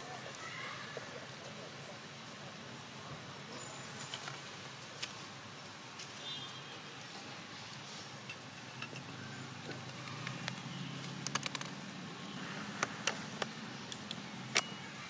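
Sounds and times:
sharp clicks: 9.9s - 11.8s.

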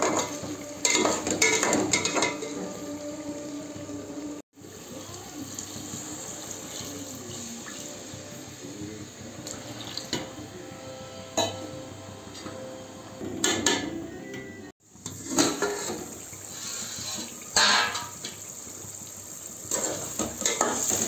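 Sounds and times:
metal clinking against pot: 0.0s - 2.7s
water pouring into a pot: 4.6s - 8.2s, 14.9s - 21.0s.

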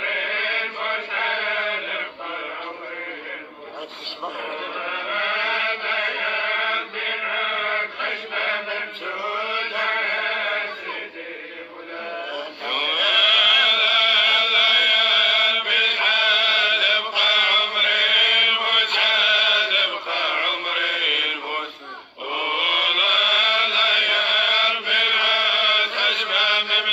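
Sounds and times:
man chanting: 12.4s - 17.8s.

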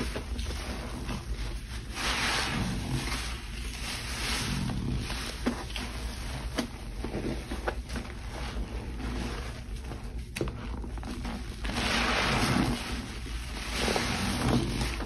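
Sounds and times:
soapy water sloshing and splashing: 11.0s - 15.0s.

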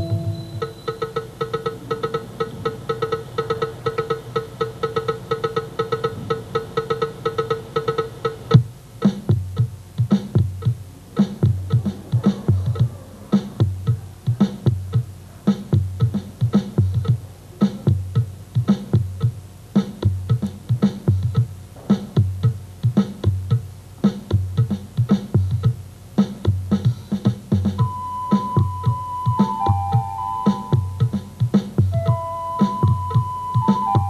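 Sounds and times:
held high note: 0.0s - 1.2s, 27.8s - 31.1s, 31.9s - 34.0s
instrumental dance music: 0.0s - 34.0s
low percussion beat: 0.0s - 34.0s.

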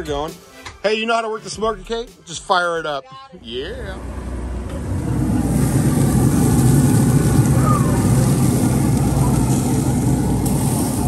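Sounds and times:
engine droning: 3.4s - 11.0s.

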